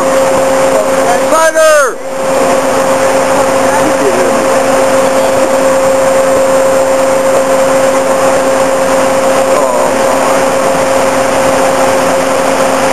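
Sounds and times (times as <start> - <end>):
diesel engine drone with whine: 0.0 - 12.9.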